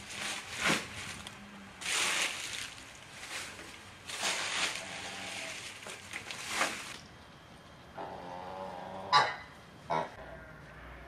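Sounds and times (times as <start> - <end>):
dry leaves crackling and rustling: 0.0 - 7.0.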